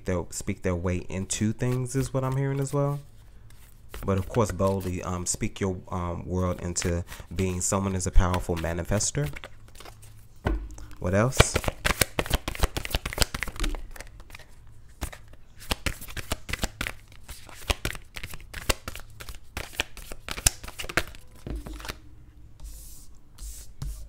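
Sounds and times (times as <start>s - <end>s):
cards being shuffled: 1.6s - 2.8s, 3.5s - 5.0s, 6.6s - 10.1s, 11.3s - 22.0s.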